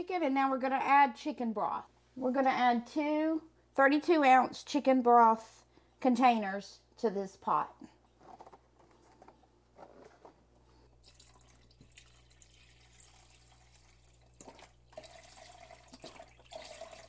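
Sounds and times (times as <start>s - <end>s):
broth pouring into a pot: 11.0s - 17.0s.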